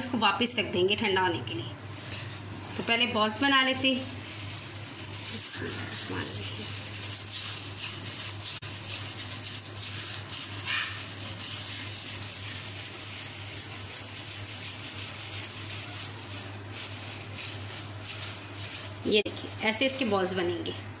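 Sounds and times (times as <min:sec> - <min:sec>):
low electrical hum: 0:00.0 - 0:21.0
hands rolling moist mixture: 0:02.1 - 0:19.3.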